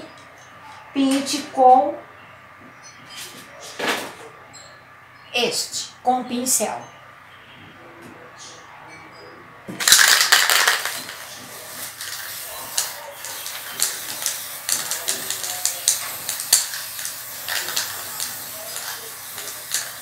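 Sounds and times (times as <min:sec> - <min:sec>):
spray-paint can hissing: 0:09.8 - 0:20.0.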